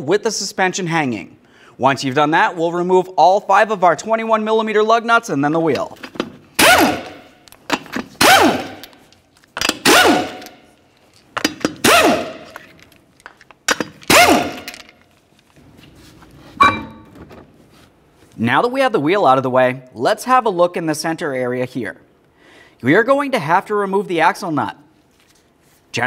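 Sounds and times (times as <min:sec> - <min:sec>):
impact wrench hammering: 0:06.0 - 0:10.7, 0:11.4 - 0:12.8, 0:13.7 - 0:14.9, 0:16.6 - 0:17.2
metallic clink: 0:16.6 - 0:17.1.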